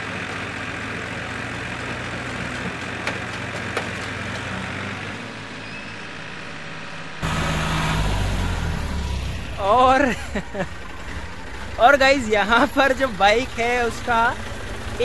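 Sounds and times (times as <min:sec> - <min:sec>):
tractor diesel engines under load: 0:00.0 - 0:15.0.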